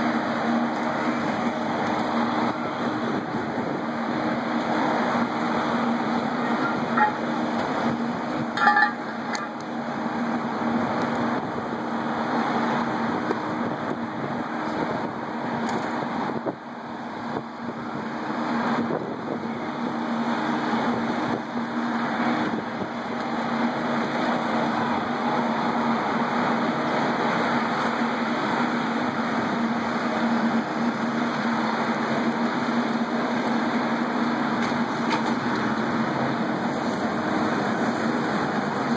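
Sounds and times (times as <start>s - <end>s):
fire engine running: 0.0s - 38.9s
water rushing hiss: 23.5s - 38.9s.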